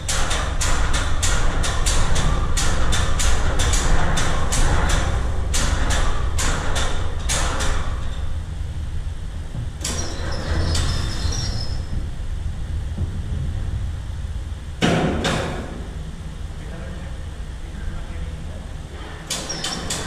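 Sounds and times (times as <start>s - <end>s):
low workshop rumble: 0.0s - 20.0s.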